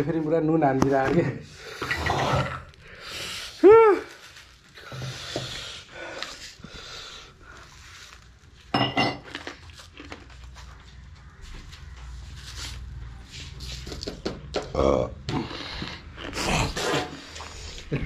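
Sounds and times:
man hissing and panting: 2.9 - 4.0, 4.8 - 7.7.

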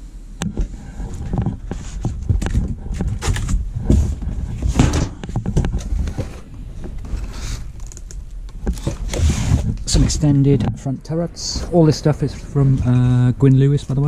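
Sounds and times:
cardboard and plastic rustling: 0.9 - 10.8.

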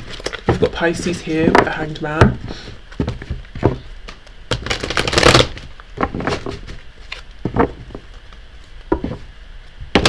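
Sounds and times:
cards being shuffled: 2.9 - 9.2.

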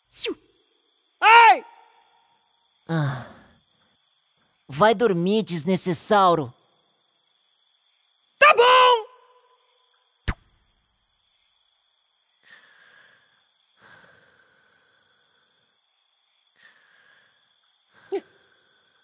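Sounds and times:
crickets chirping: 0.0 - 19.0
soft sleeping breaths: 12.4 - 19.0.

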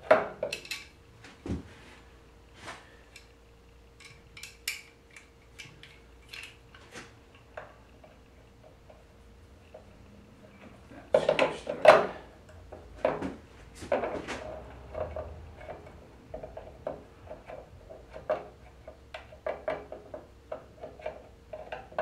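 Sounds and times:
metal parts clicking and clinking: 0.4 - 1.0, 4.0 - 6.6.

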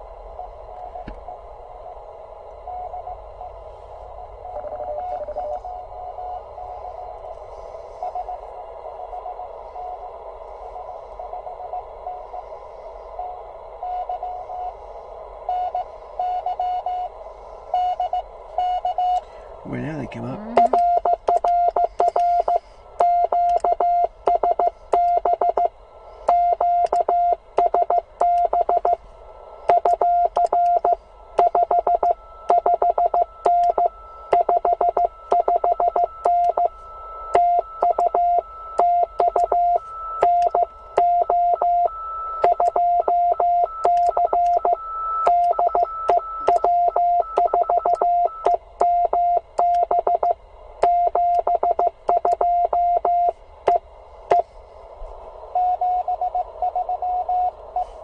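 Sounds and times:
receiver hiss: 0.0 - 58.0
faint higher second tone: 2.6 - 7.0, 20.1 - 21.0
morse code beeping tone: 4.4 - 5.8, 19.8 - 25.7, 26.3 - 29.0, 29.7 - 36.7, 37.4 - 54.4.

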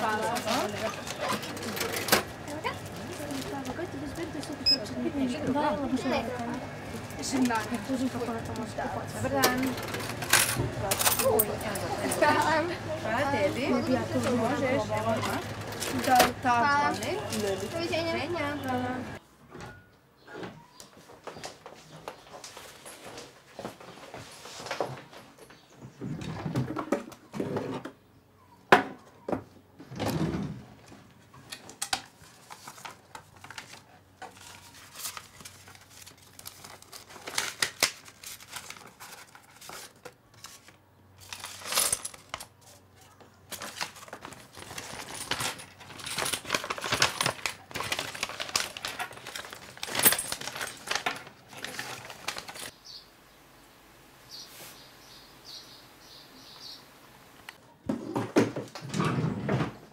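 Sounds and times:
paper rustling: 32.0 - 52.8
coins clinking: 41.2 - 42.5, 44.6 - 52.7.

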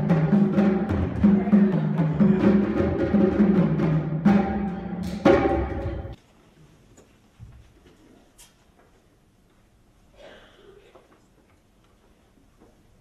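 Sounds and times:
drum-driven music: 0.0 - 6.2.

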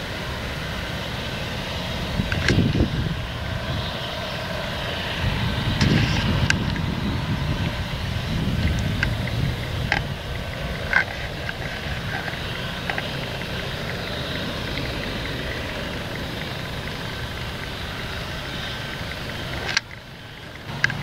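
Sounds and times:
combine harvester running: 0.0 - 21.0
faint steady whine: 0.0 - 21.0.

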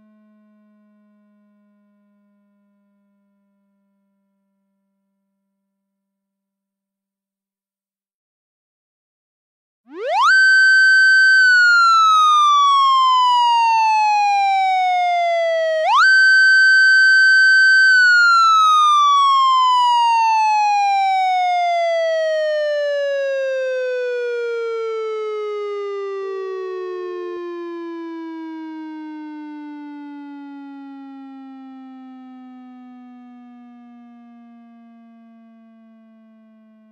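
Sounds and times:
police motorcycle siren wailing: 9.9 - 36.9.

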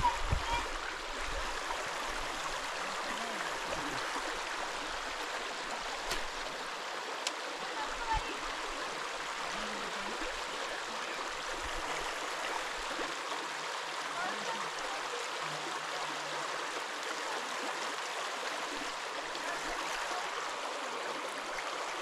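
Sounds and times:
river current rushing: 0.0 - 22.0
faint clicks: 7.2 - 7.4.

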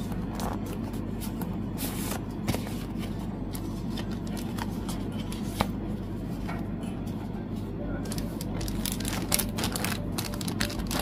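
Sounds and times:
steady low hum: 0.0 - 11.0
packaging rustling and clicking: 8.1 - 11.0.

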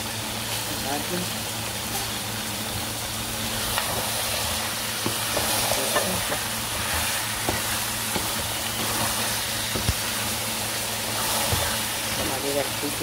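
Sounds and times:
food sizzling in a pan: 0.0 - 13.0
spatula scraping a pan: 3.8 - 10.3, 11.0 - 12.4.

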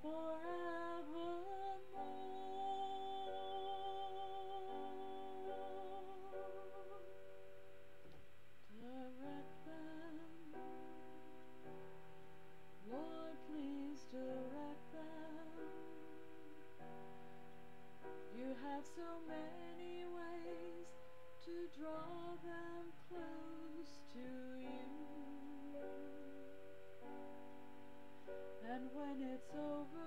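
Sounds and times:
woman singing slow song: 0.0 - 7.4, 8.6 - 11.3, 12.8 - 16.6, 18.1 - 26.6, 28.5 - 30.0.

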